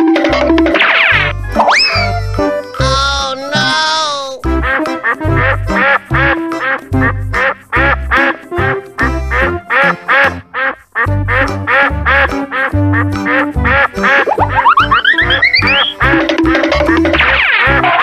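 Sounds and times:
music with steady beat: 0.0 - 10.4, 11.0 - 17.4
duck quack sounds: 2.8 - 8.5, 9.3 - 18.0.

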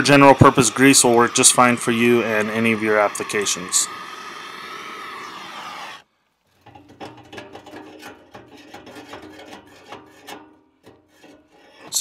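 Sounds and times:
torch flame hissing: 0.0 - 6.0.

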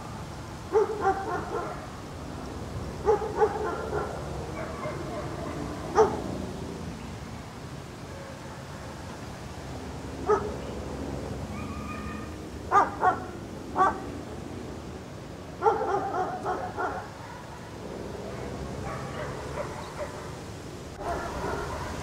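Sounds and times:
dog barking: 0.7 - 1.9, 3.0 - 6.3, 8.1 - 8.8, 10.2 - 10.6, 11.5 - 14.1, 15.6 - 20.4, 21.0 - 22.0
dog yipping and whining: 11.5 - 12.3.

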